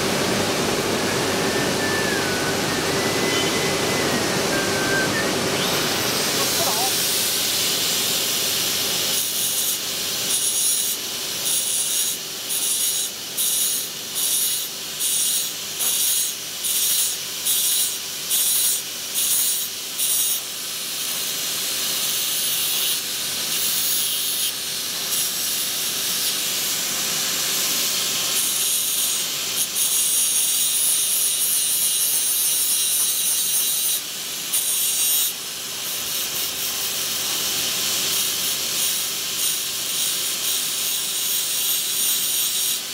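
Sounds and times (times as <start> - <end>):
angle grinder grinding metal wire: 1.5 - 7.5, 28.2 - 37.4, 38.1 - 42.9.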